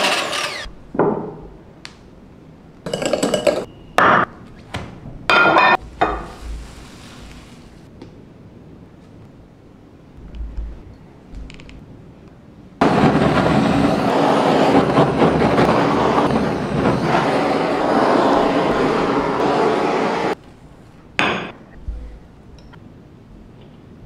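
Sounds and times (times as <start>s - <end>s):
blowtorch flame: 12.8s - 20.4s.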